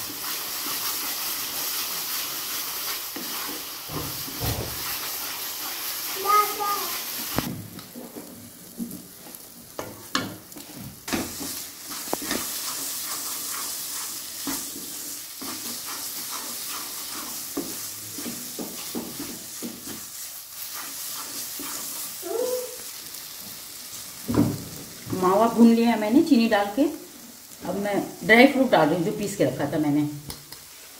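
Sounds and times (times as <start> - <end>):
spatula scraping a pan: 0.0 - 7.4, 11.1 - 23.0
steady sizzle: 0.0 - 30.9.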